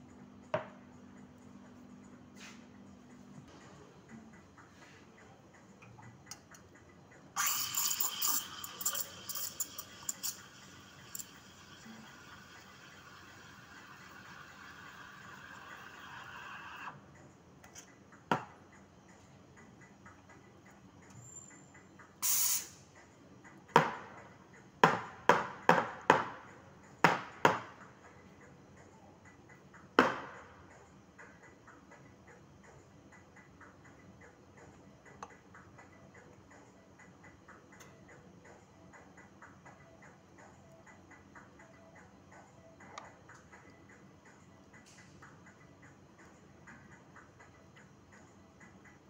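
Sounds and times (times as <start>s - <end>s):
steam wand hissing into milk: 7.4s - 16.9s, 22.2s - 22.8s.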